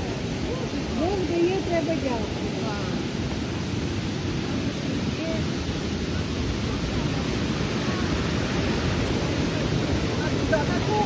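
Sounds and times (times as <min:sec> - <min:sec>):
faint distant crowd voices: 0:00.0 - 0:11.0
river rushing over rocks: 0:00.0 - 0:11.0.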